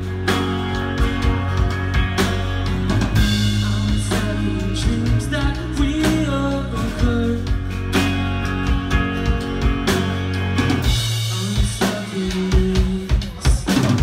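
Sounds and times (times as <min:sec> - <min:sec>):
person singing: 0:00.0 - 0:08.0, 0:11.1 - 0:14.0
acoustic guitar: 0:00.0 - 0:14.0
bass guitar: 0:00.0 - 0:14.0
drum kit: 0:00.0 - 0:14.0
electric guitar: 0:00.0 - 0:14.0.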